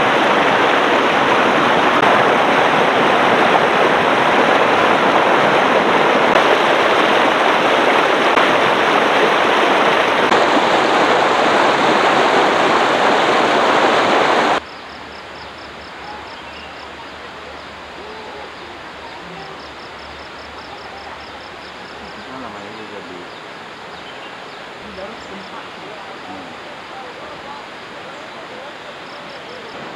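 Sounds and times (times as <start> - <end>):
river rushing over boulders: 0.0 - 14.7, 23.3 - 29.9.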